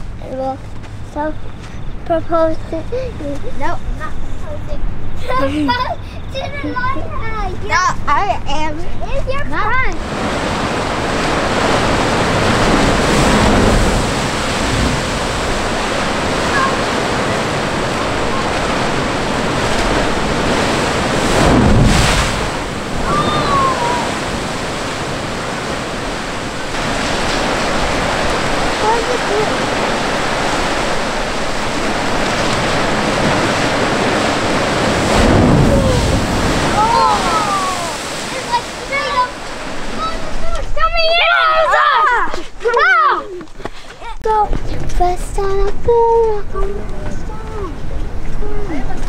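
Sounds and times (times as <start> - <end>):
ocean surf on rocky shore: 1.5 - 49.0.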